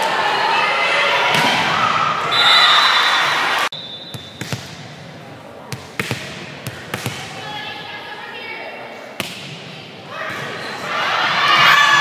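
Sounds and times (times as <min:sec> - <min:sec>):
gym crowd noise: 0:00.0 - 0:12.0
referee's whistle blowing: 0:02.3 - 0:04.4.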